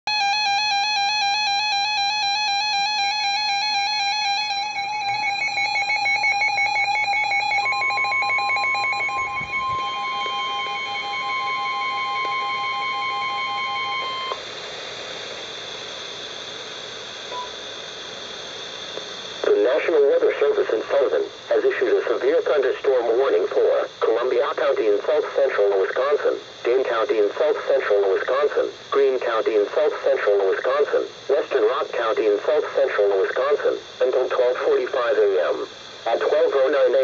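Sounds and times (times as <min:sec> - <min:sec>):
fast warbling alarm: 0:00.1 - 0:14.4
steady single-pitch warning tone: 0:00.1 - 0:37.0
radio hiss: 0:13.6 - 0:37.0.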